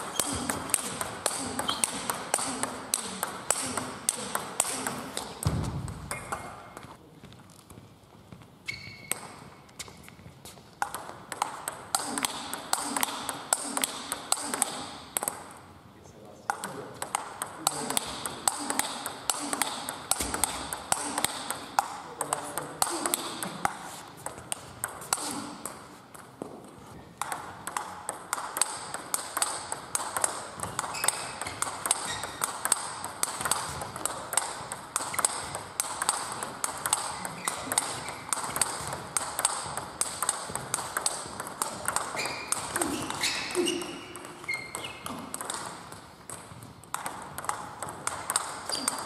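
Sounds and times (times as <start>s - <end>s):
distant table tennis rallies: 0.0s - 7.0s, 8.6s - 15.8s, 16.4s - 49.0s
table tennis ball clicking: 10.7s - 15.6s, 16.5s - 26.6s, 27.2s - 49.0s.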